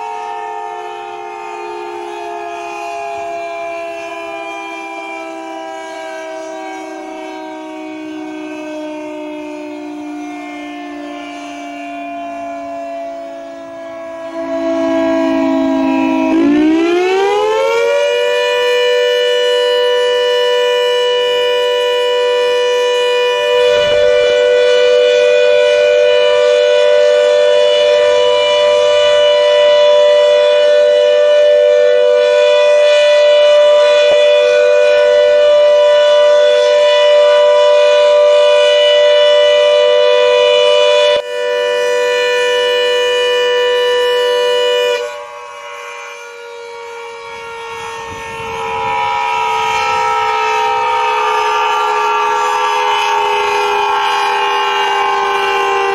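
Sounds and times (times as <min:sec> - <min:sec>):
air-raid siren: 0:00.0 - 0:55.9.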